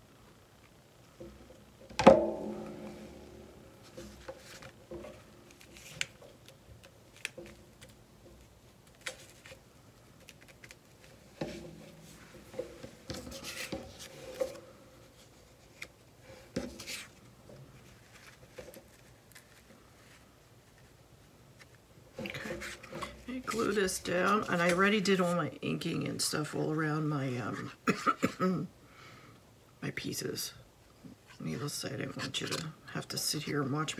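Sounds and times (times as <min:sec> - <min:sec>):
paper rustling: 0:03.8 - 0:21.0.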